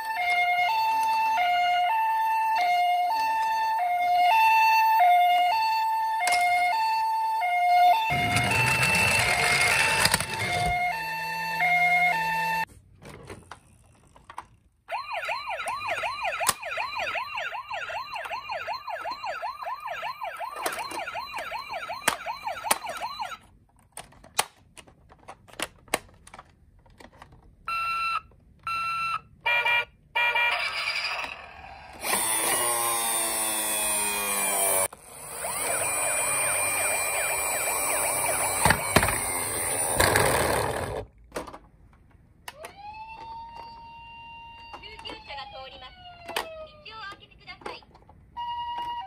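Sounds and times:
toy siren hi-lo: 0:00.0 - 0:12.7, 0:14.9 - 0:23.4, 0:27.7 - 0:40.0, 0:42.6 - 0:46.9, 0:48.4 - 0:49.0
toy yelp siren: 0:00.0 - 0:12.7, 0:14.9 - 0:23.5, 0:27.7 - 0:40.2, 0:42.5 - 0:47.2, 0:48.4 - 0:49.0
wail siren: 0:00.0 - 0:12.7, 0:14.9 - 0:23.4, 0:33.5 - 0:39.9, 0:42.5 - 0:47.1, 0:48.4 - 0:49.0
plastic toys clicking: 0:08.3 - 0:10.7, 0:22.0 - 0:27.6, 0:47.1 - 0:49.0.

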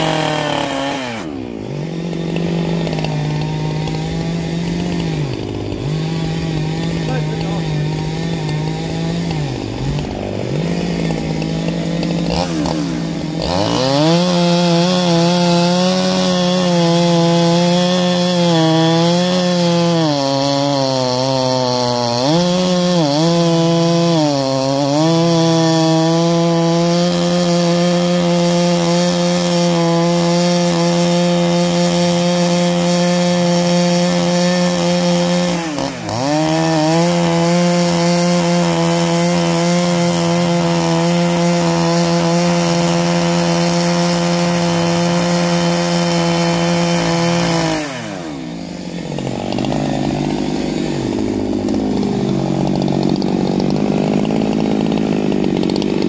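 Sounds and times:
chainsaw cutting log: 0:00.0 - 0:56.0.

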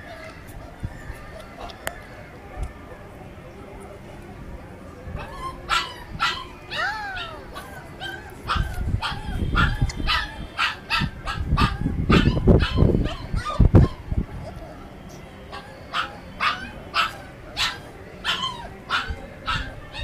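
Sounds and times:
puppy yipping and whimpering: 0:05.2 - 0:14.9, 0:15.5 - 0:20.0.

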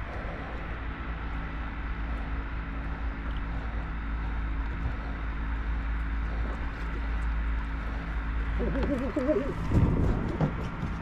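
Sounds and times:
boat engine humming: 0:00.0 - 0:11.0
wind: 0:00.0 - 0:11.0
water noise: 0:03.0 - 0:10.6.

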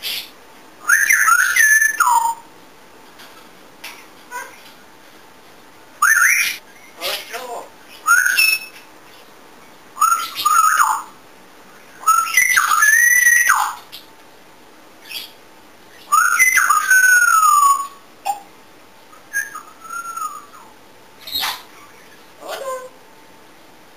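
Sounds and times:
parrot whistling: 0:00.8 - 0:02.4, 0:06.0 - 0:06.6, 0:08.0 - 0:08.8, 0:10.0 - 0:11.1, 0:12.0 - 0:13.8, 0:16.0 - 0:18.4, 0:19.3 - 0:21.6.

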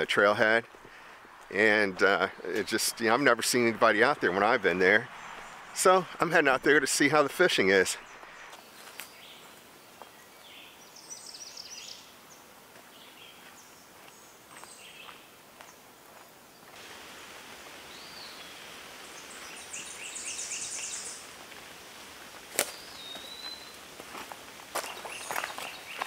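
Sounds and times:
steady hiss: 0:00.0 - 0:26.0
bird chirps and calls: 0:17.9 - 0:21.3, 0:22.6 - 0:23.8.

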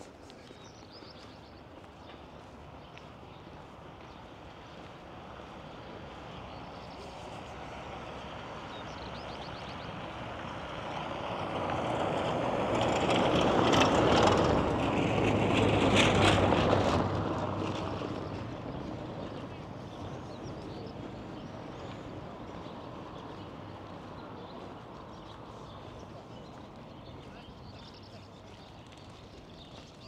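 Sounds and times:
motor vehicle passing: 0:04.4 - 0:30.0
vehicle rattling: 0:11.2 - 0:19.3.

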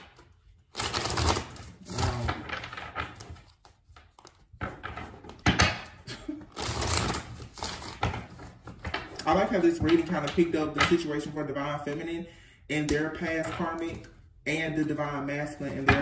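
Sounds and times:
cards shuffling and rustling: 0:00.0 - 0:05.8, 0:06.4 - 0:12.0.

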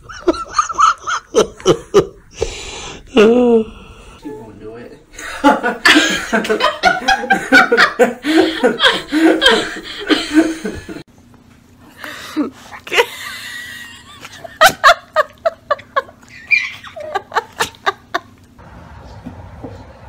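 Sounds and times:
people laughing: 0:00.0 - 0:02.3, 0:05.1 - 0:11.0, 0:12.9 - 0:18.5.

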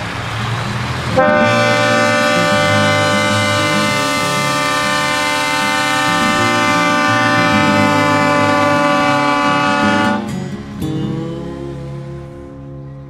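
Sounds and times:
steady horn tone: 0:01.1 - 0:10.3.

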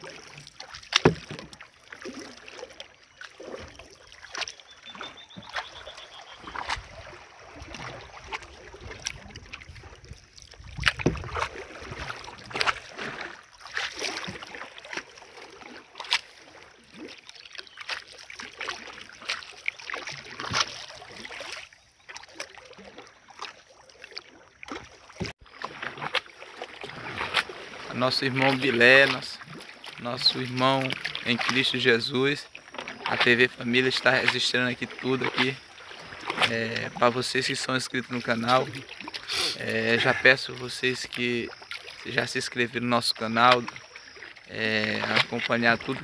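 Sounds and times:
paddle splashing in water: 0:00.0 - 0:46.0
water lapping along hull: 0:00.0 - 0:46.0
canoe clicks and knocks: 0:00.6 - 0:01.7, 0:10.7 - 0:12.9.

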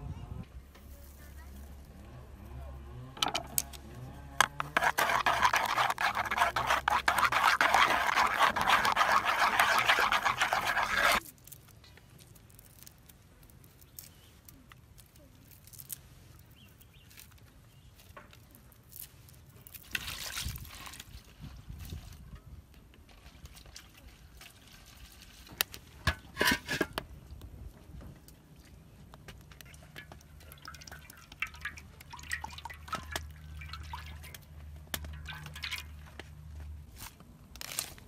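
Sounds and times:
batter stirred in a bowl: 0:04.4 - 0:11.2, 0:29.3 - 0:36.2.

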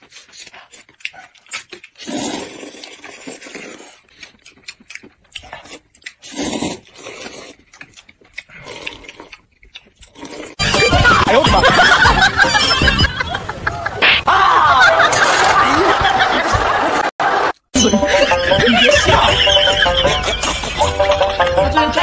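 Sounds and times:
people slurping noodles: 0:00.0 - 0:04.4, 0:05.4 - 0:07.7, 0:08.4 - 0:12.0
wet smacking chewing: 0:00.0 - 0:10.6.

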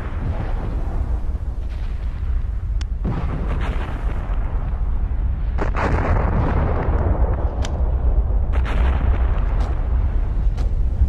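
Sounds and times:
deep continuous rumble: 0:00.0 - 0:11.0
sharp cracks and bangs: 0:05.5 - 0:11.0.

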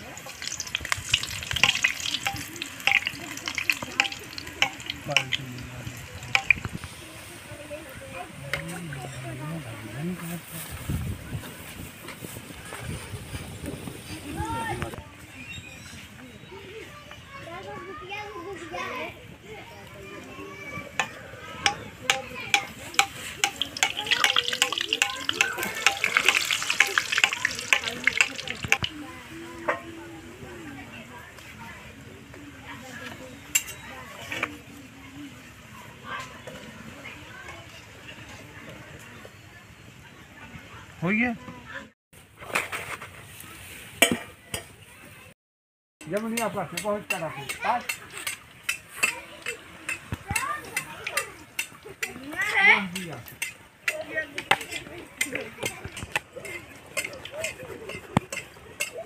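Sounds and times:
ladle spooning oil: 0:00.0 - 0:06.8, 0:22.1 - 0:28.9
oil crackling and popping: 0:00.0 - 0:07.0, 0:22.1 - 0:29.0
dough deep-frying in hot oil: 0:00.0 - 0:08.0, 0:22.0 - 0:30.2.

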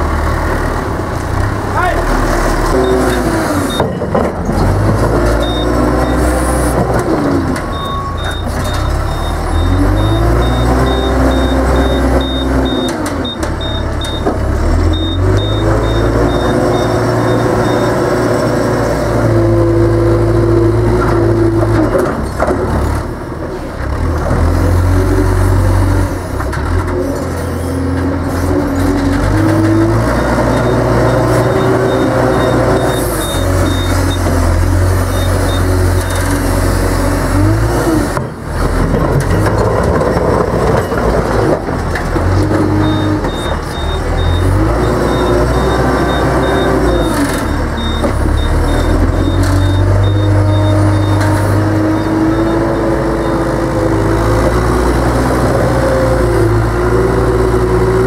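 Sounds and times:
diesel engine revving: 0:00.0 - 0:58.0
reversing alarm beeping: 0:02.8 - 0:04.0, 0:05.4 - 0:06.5, 0:07.7 - 0:18.4, 0:30.2 - 0:34.4, 0:35.0 - 0:35.8, 0:42.8 - 0:53.6.

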